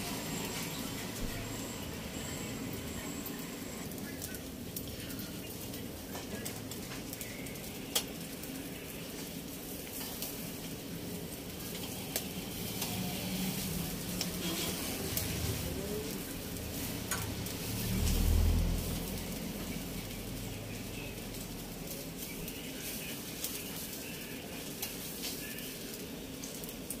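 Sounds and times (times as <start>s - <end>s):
meat sizzling on charcoal grill: 0.0s - 27.0s
low rumble: 14.9s - 21.8s.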